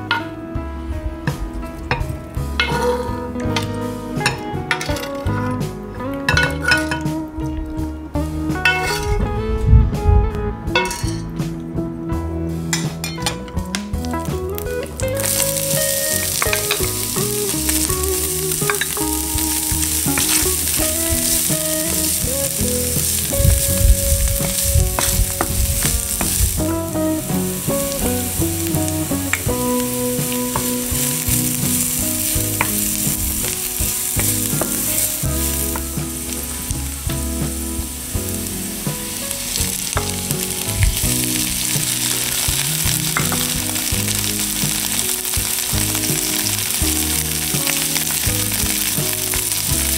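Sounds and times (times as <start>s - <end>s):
onion and garlic sizzling in oil: 1.8s - 7.5s, 8.2s - 9.3s, 13.9s - 49.9s.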